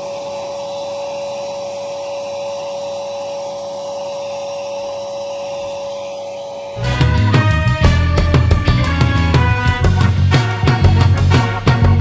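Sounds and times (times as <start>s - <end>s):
vacuum cleaner running: 0.0s - 7.0s.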